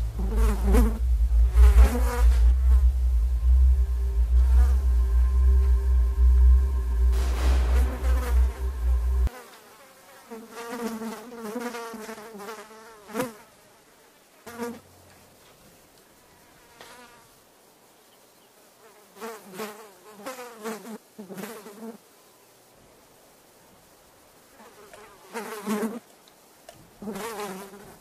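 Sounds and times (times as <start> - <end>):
loud low hum: 0.0 - 9.3
insect buzzing: 0.0 - 14.9, 23.9 - 28.0.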